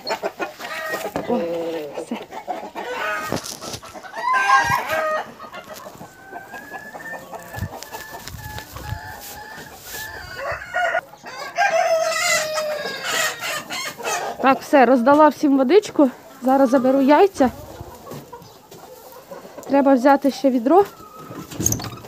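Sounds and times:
chickens clucking: 0:00.0 - 0:22.0
rooster crowing: 0:08.8 - 0:13.7.

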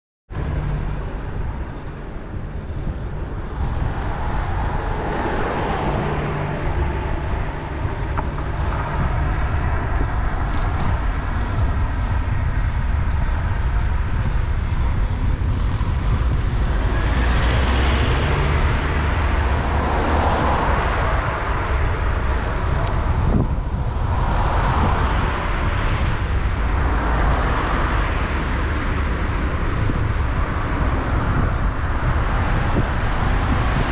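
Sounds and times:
road traffic rumble: 0:00.3 - 0:33.9
vehicles passing: 0:00.3 - 0:33.9.

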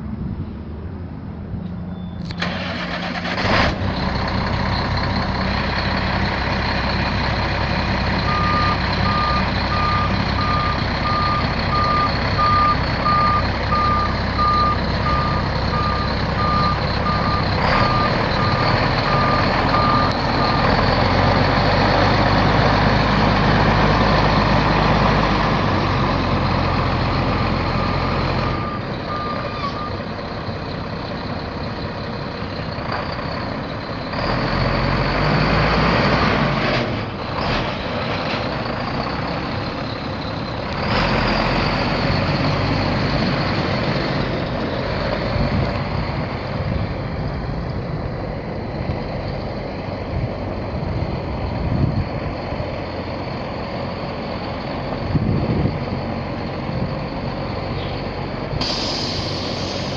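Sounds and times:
truck backup alarm beeping: 0:01.9 - 0:36.6, 0:37.2 - 0:47.2
diesel truck engine running: 0:02.2 - 0:59.9.

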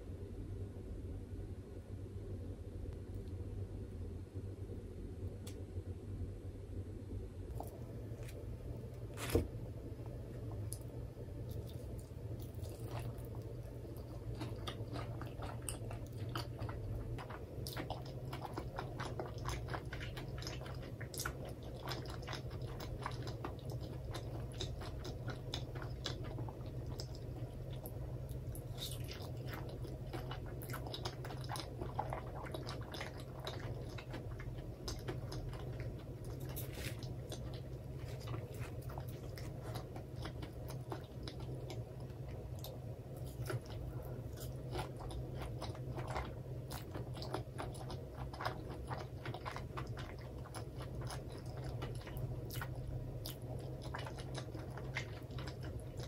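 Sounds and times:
steady low hum: 0:00.0 - 0:56.0
chewing crunchy fried chicken: 0:10.6 - 0:56.0.

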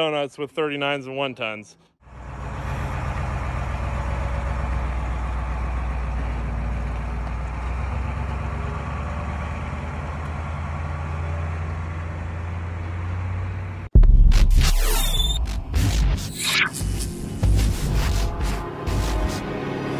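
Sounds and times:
large vehicle engine idling: 0:02.0 - 0:13.9.

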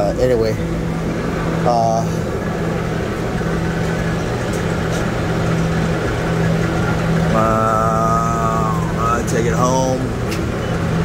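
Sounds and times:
vacuum pump humming: 0:00.0 - 0:11.0.

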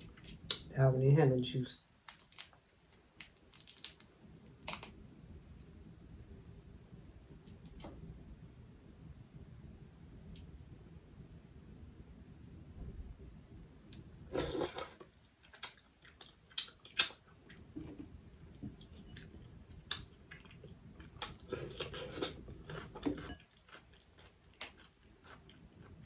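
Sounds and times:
chewing: 0:14.3 - 0:18.1, 0:18.7 - 0:26.0.

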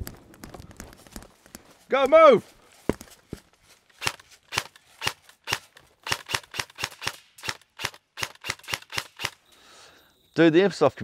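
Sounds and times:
airsoft gun rapid shots: 0:04.0 - 0:09.4.

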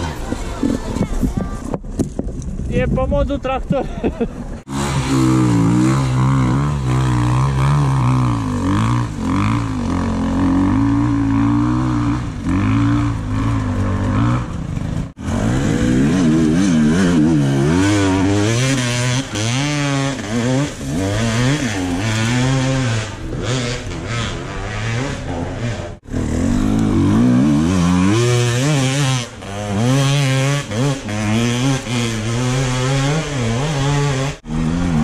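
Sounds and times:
dirt bike engine revving: 0:04.6 - 0:35.0.

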